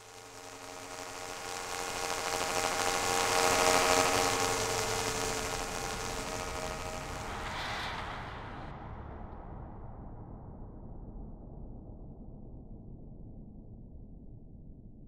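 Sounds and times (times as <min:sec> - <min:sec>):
buzzing drone of held tones: 0:00.0 - 0:07.7
high hiss: 0:00.0 - 0:08.2.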